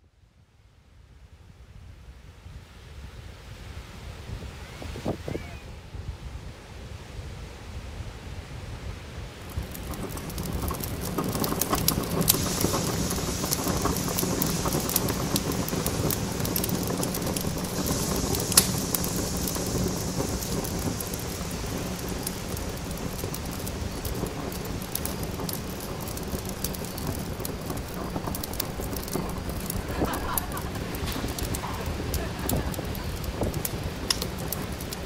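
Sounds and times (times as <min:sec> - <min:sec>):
campfire crackling and popping: 0:09.3 - 0:35.0.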